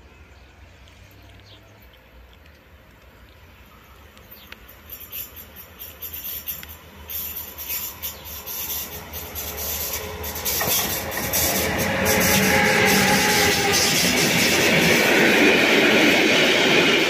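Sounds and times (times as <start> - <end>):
train wheels clicking on track: 4.2 - 17.0
thin wheel squeal: 4.8 - 14.2.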